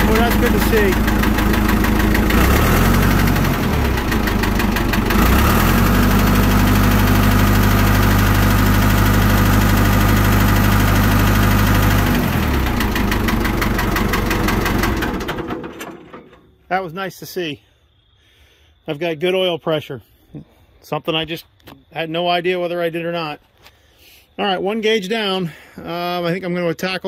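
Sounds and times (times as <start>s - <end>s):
tractor engine running: 0.0s - 16.6s.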